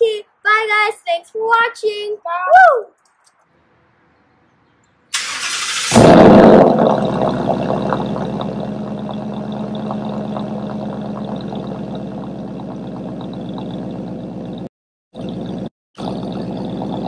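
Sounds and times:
car starter cranking: 0:05.2 - 0:14.7
car engine burbling idle: 0:05.2 - 0:17.0.

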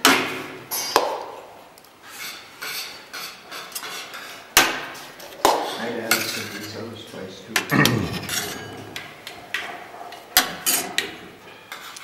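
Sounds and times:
spoons clinking on metal plates: 0:05.6 - 0:06.8, 0:08.2 - 0:09.1.

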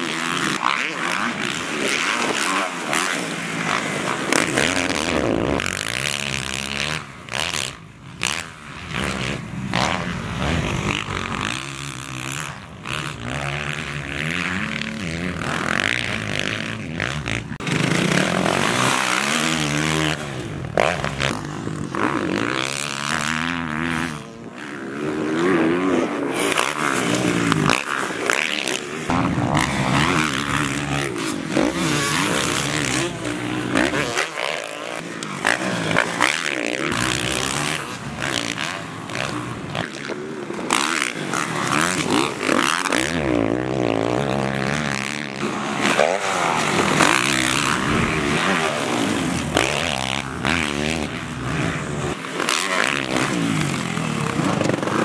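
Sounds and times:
dirt bike engines revving: 0:00.0 - 0:55.0.

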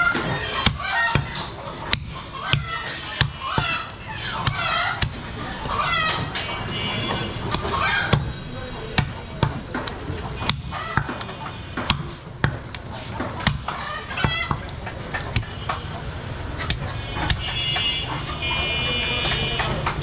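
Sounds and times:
cleaver chopping on wooden block: 0:00.1 - 0:03.8, 0:09.0 - 0:15.9.

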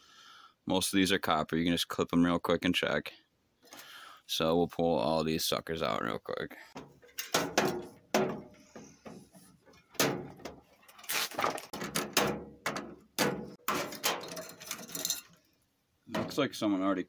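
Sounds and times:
wires clicking and rattling on metal: 0:06.8 - 0:15.6.

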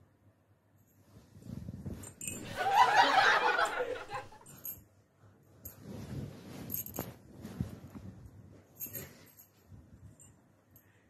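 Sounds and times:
person laughing: 0:02.5 - 0:04.4.

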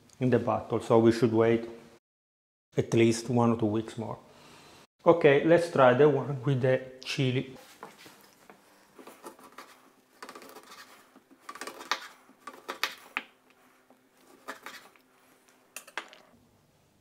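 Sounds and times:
knife cutting on wooden board: 0:09.0 - 0:15.0.

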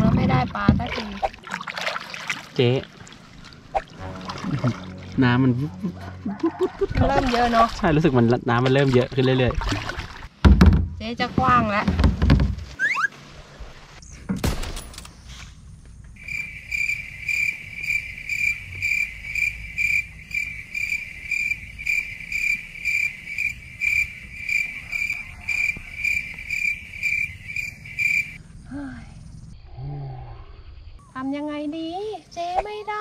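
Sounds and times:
insect chirping: 0:15.0 - 0:33.0.

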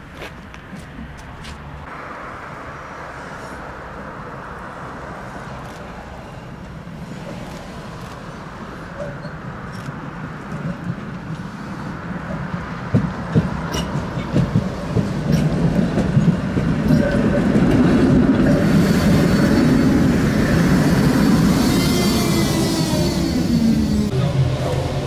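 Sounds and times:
tram running on rails: 0:00.0 - 0:25.0
tram wheels clicking over track: 0:12.4 - 0:25.0.

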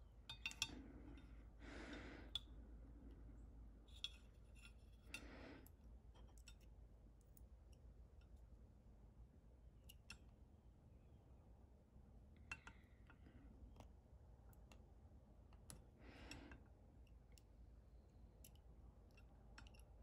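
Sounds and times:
soft breaths: 0:00.7 - 0:03.8, 0:04.9 - 0:05.9, 0:15.8 - 0:16.8
small metal clicks: 0:18.4 - 0:20.0.

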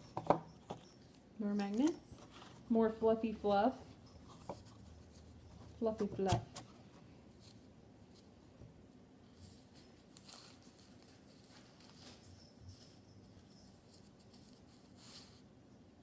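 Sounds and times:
tissue paper rustling: 0:09.2 - 0:15.4.

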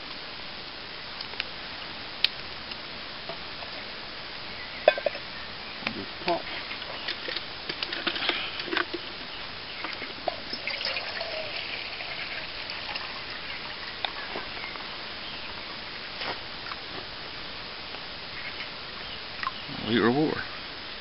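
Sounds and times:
water trickling into steel cup: 0:09.7 - 0:14.7.

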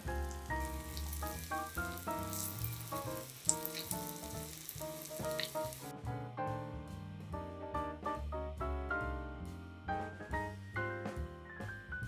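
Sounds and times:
food sizzling in frying pan: 0:00.0 - 0:05.9
light instrumental music: 0:00.0 - 0:12.0.

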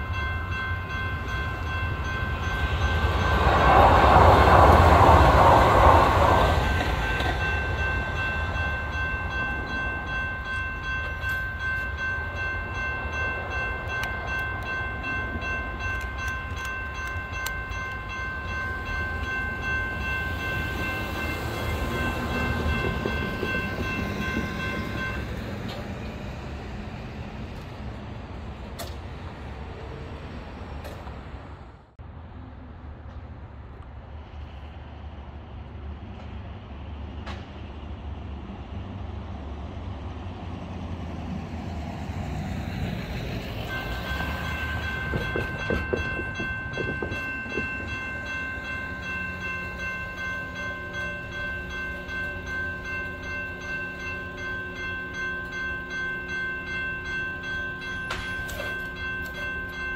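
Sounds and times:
crossing bells ringing: 0:00.0 - 0:26.8, 0:42.2 - 0:59.9
train rumble: 0:00.0 - 0:59.9.

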